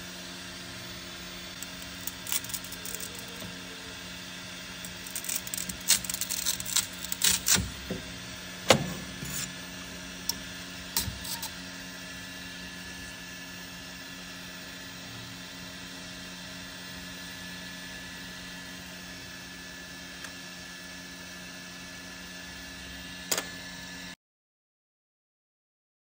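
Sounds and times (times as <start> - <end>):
steady low hum: 0.0 - 17.1.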